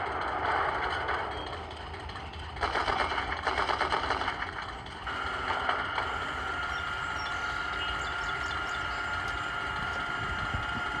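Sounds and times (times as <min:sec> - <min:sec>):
engine idle rumble through speaker: 0:00.0 - 0:11.0
high-pitched turret whine: 0:05.0 - 0:11.0.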